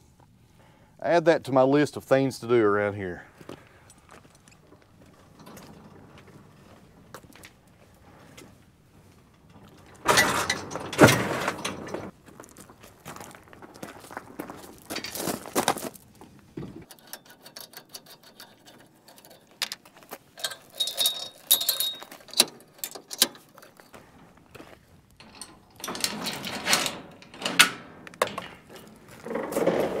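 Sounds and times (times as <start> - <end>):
footsteps on gravel: 3.2 - 9.9, 12.1 - 16.6, 23.8 - 25.2, 28.6 - 30.0
metal clicks and rattling: 3.8 - 8.1, 9.0 - 12.1, 16.8 - 29.6.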